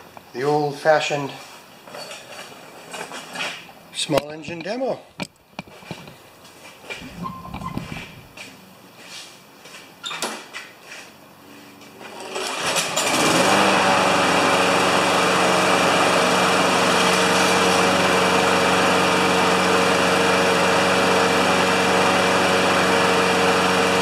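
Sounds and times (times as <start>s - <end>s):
lawn mower engine running: 12.0s - 24.0s.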